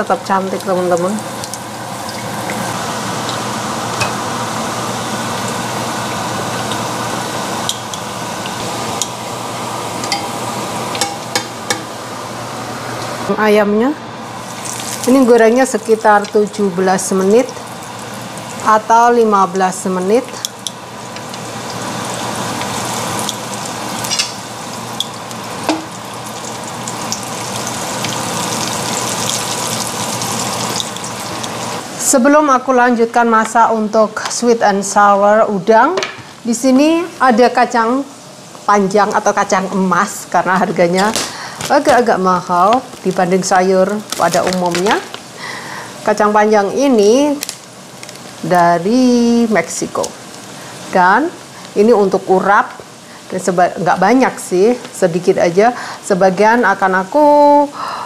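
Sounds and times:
oil sizzling in a skillet: 0:00.0 - 0:12.6, 0:14.2 - 0:32.1, 0:36.8 - 0:56.0
utensils clicking against pan: 0:24.0 - 0:24.4.

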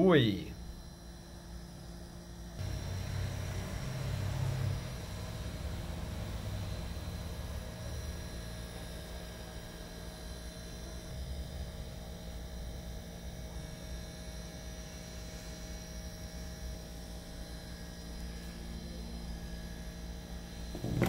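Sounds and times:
steady low hum: 0:00.0 - 0:11.9, 0:16.3 - 0:21.0.

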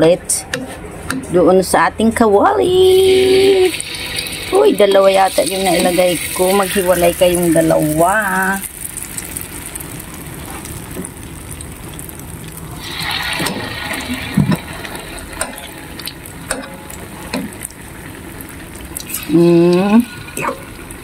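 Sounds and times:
deep-frying sizzle: 0:02.7 - 0:21.0.

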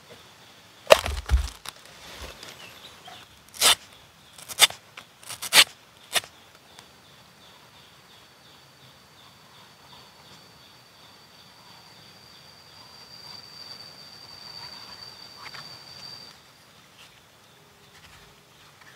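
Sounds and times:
insects chirping: 0:00.0 - 0:18.9
knife chopping coconut husk: 0:00.9 - 0:01.7, 0:04.4 - 0:06.3.

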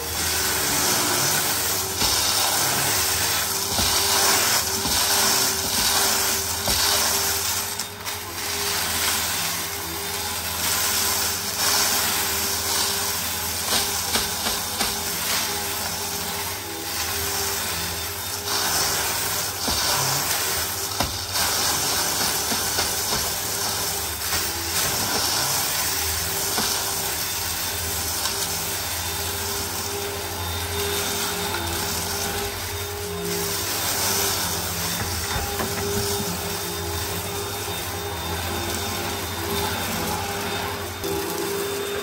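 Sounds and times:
cornflakes rattling in vacuum: 0:00.0 - 0:42.0
vacuum cleaner running: 0:00.0 - 0:42.0.

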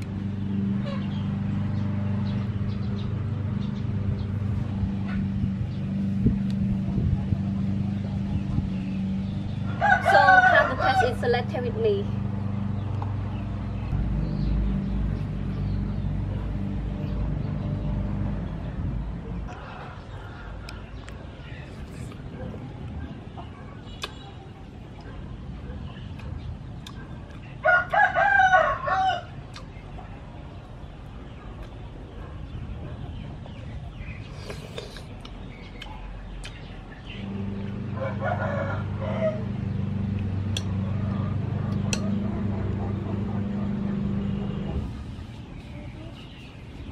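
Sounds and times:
engine hum: 0:00.0 - 0:46.9
rooster crowing: 0:09.7 - 0:11.2, 0:27.6 - 0:29.4, 0:37.4 - 0:39.6
low rumble: 0:11.1 - 0:23.2, 0:37.2 - 0:46.9.

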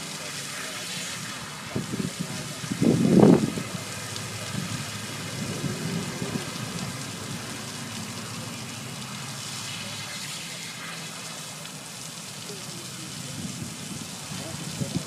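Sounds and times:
falling water hiss: 0:00.0 - 0:15.0
low rumble: 0:02.8 - 0:08.7.

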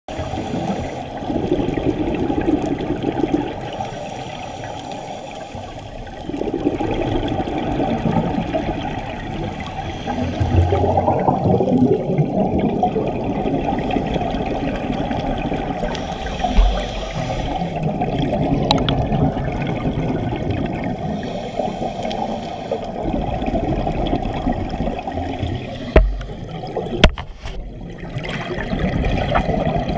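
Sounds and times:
underwater regulator bubbles: 0:00.1 - 0:04.0, 0:05.5 - 0:29.9
low thump: 0:26.0 - 0:26.3.

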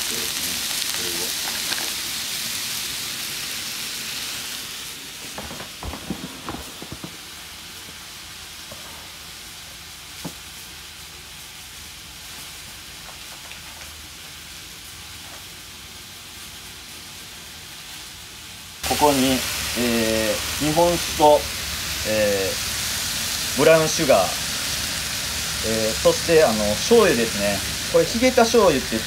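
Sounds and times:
food sizzling in a wok: 0:00.0 - 0:29.0.

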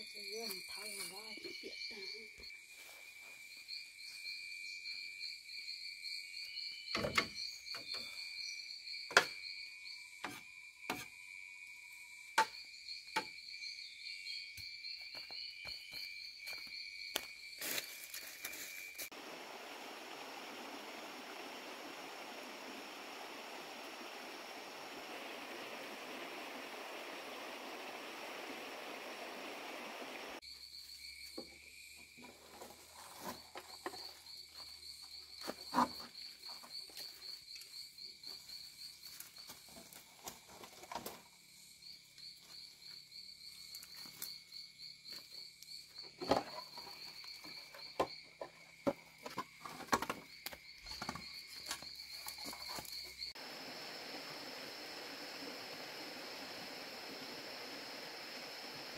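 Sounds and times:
insects trilling: 0:00.0 - 0:58.9
rushing hiss: 0:19.0 - 0:30.4, 0:53.3 - 0:58.9.

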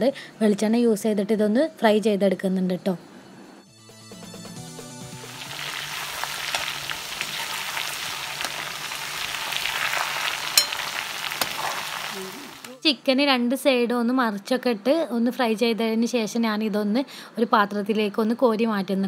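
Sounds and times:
chicken sizzling in a pan: 0:05.0 - 0:12.8.

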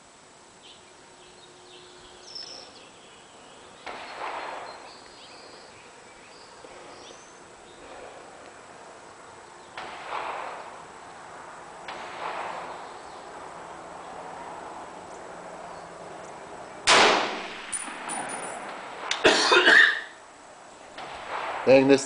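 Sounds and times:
loud rifle shot: 0:03.8 - 0:05.0, 0:09.8 - 0:10.9, 0:11.8 - 0:13.3, 0:16.8 - 0:19.1, 0:21.0 - 0:22.0
sharp bangs with echo: 0:03.8 - 0:05.0, 0:09.8 - 0:11.0, 0:11.8 - 0:13.4, 0:16.8 - 0:19.1, 0:21.0 - 0:22.0
light metal clinks: 0:17.6 - 0:18.8.

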